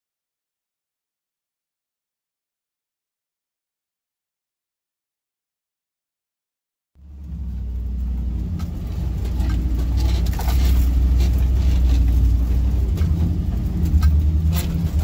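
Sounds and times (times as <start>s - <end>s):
engine rumble inside vehicle cab: 7.0s - 15.0s.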